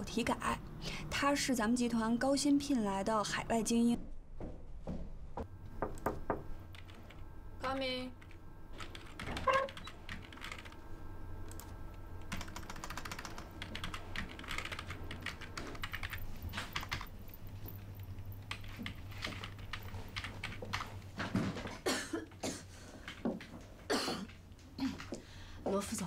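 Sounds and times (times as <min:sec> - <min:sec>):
fast typing on keyboard: 0:08.2 - 0:10.8, 0:11.6 - 0:17.1, 0:18.1 - 0:21.0.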